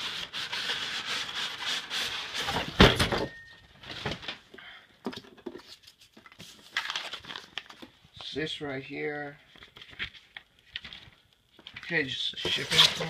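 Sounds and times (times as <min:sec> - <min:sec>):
cardboard and paper rustling: 0:05.1 - 0:08.4, 0:09.4 - 0:13.0.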